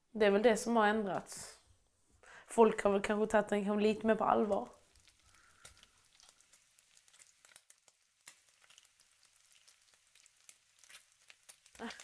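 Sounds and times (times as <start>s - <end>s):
faint crackling of frying oil: 2.8s - 12.0s.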